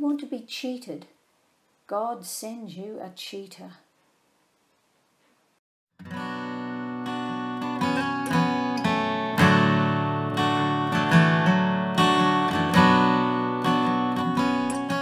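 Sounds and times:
acoustic guitar strumming: 0:06.0 - 0:15.0.

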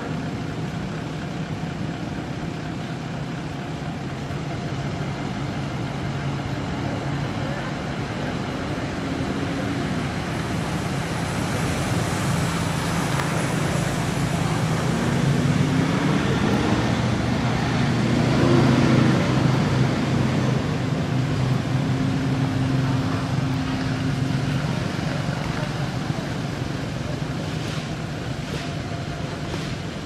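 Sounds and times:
outdoor traffic noise: 0:00.0 - 0:30.0
vehicle engine humming: 0:00.0 - 0:30.0.

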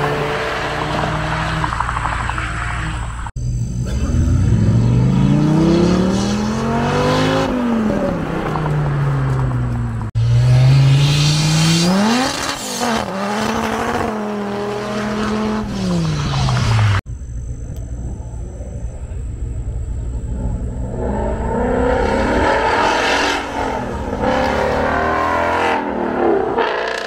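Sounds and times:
car engine revving hard: 0:03.6 - 0:08.2, 0:10.2 - 0:17.0, 0:20.9 - 0:27.0.

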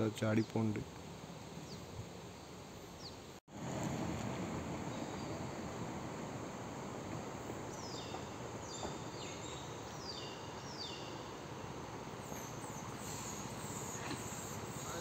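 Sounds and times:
forest background hiss: 0:00.0 - 0:15.0.

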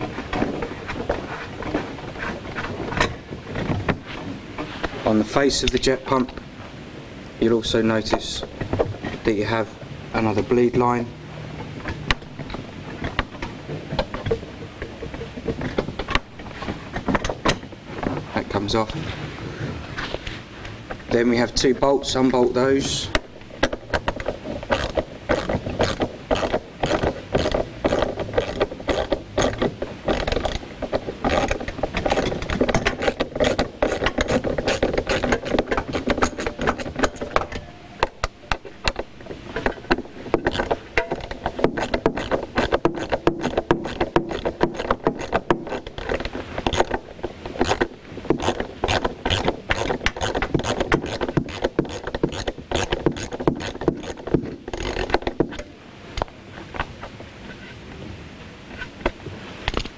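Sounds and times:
hand ratchet clicking: 0:23.1 - 0:55.6.

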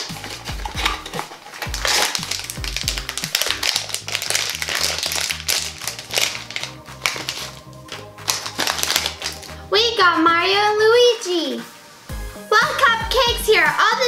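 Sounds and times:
foil wrapper crinkling and tearing: 0:00.0 - 0:09.6
background music with bass beat: 0:00.0 - 0:10.6, 0:11.6 - 0:13.9.

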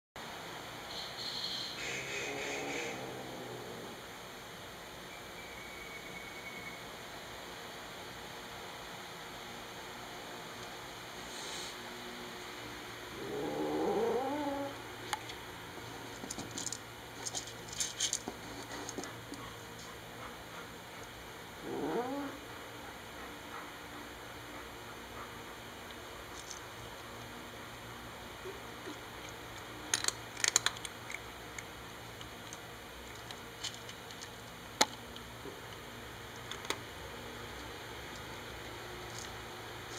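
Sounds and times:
cat growling: 0:02.2 - 0:04.0, 0:13.1 - 0:14.8, 0:21.6 - 0:22.5
cat crunching dry kibble: 0:29.2 - 0:35.2.

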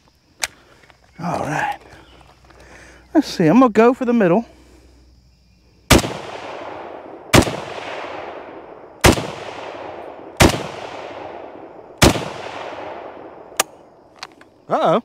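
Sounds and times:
rifle shots echoing: 0:05.9 - 0:14.1.

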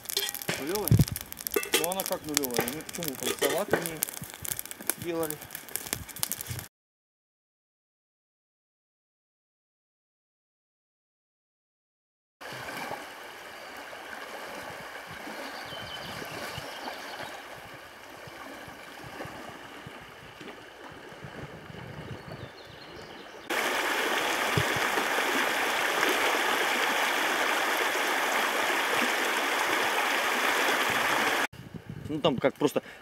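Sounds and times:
river water rushing over riffles: 0:12.4 - 0:21.2, 0:23.5 - 0:31.5.

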